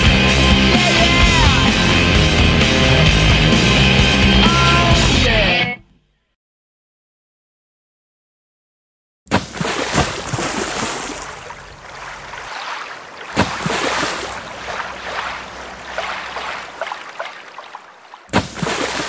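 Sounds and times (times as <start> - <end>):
water rushing and splashing: 9.3 - 19.0.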